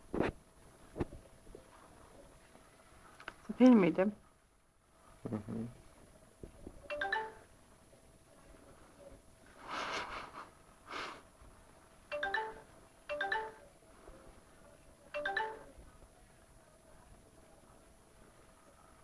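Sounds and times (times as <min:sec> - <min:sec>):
messenger notification chime: 0:06.9 - 0:07.5, 0:12.1 - 0:13.6, 0:15.2 - 0:15.7.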